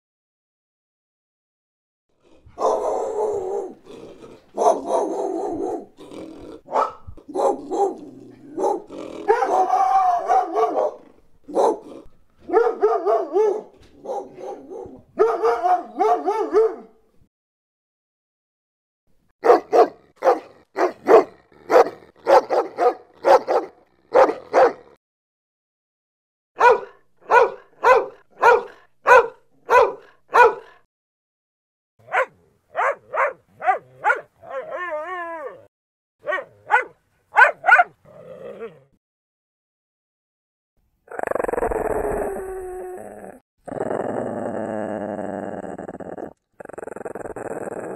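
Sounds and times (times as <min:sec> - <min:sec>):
dog barking: 0:02.6 - 0:03.8, 0:04.5 - 0:06.0, 0:06.7 - 0:17.0, 0:19.4 - 0:25.0, 0:26.6 - 0:30.8, 0:32.0 - 0:34.8, 0:36.2 - 0:38.0
dog howling: 0:02.6 - 0:03.8, 0:07.6 - 0:11.0, 0:34.1 - 0:35.7.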